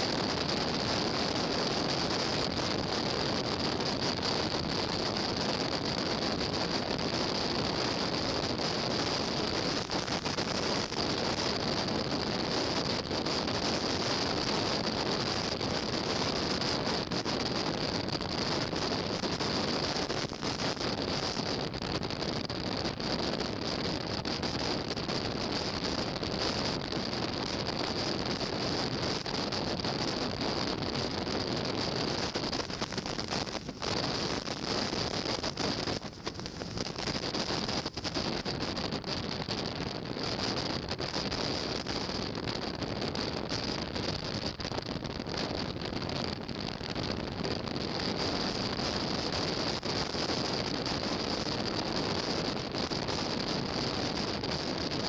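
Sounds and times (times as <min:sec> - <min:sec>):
wind noise on microphone: 0:00.0 - 0:55.0
steady high whine: 0:30.4 - 0:39.6.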